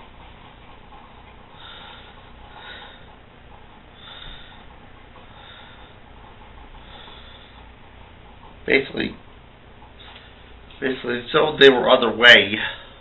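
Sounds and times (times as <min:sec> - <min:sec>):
steady hiss: 0:00.0 - 0:13.0
person breathing softly: 0:01.6 - 0:03.1, 0:04.0 - 0:04.7, 0:05.3 - 0:06.0, 0:06.8 - 0:07.7.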